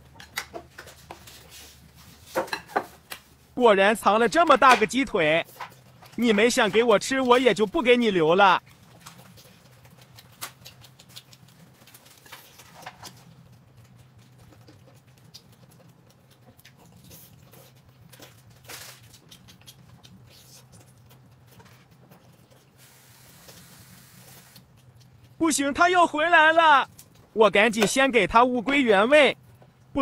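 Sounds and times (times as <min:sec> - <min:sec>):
person chewing meat: 0:08.6 - 0:25.4, 0:26.8 - 0:27.4.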